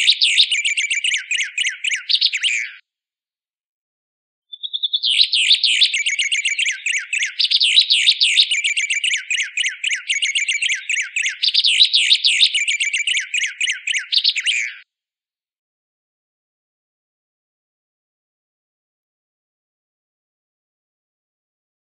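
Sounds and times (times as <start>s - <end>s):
songbird chattering song: 0.0s - 2.8s, 4.5s - 14.8s.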